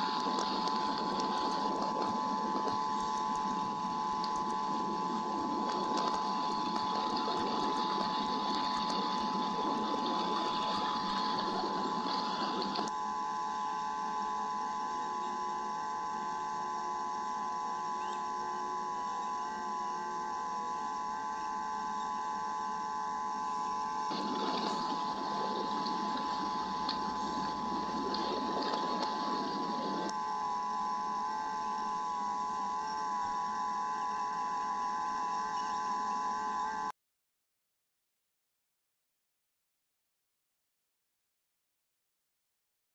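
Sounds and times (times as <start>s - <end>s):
rain pattering on microphone: 0.0s - 12.9s, 24.1s - 30.1s
steady electrical whine: 0.0s - 37.0s.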